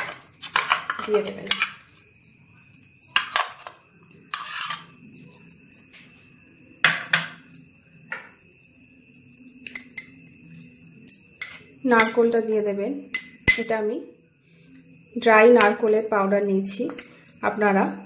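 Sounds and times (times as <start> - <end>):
metal spoon scraping dish: 0.0 - 2.0, 3.2 - 5.0, 11.4 - 12.2
spoon clinking against ceramic bowls: 0.0 - 2.0, 9.6 - 10.2, 11.0 - 12.2, 13.1 - 13.7, 16.9 - 17.3.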